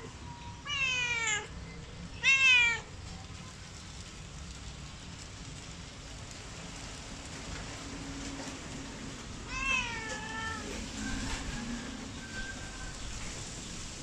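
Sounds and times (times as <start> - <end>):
cat meowing: 0.6 - 1.5, 2.2 - 2.9, 9.5 - 10.7.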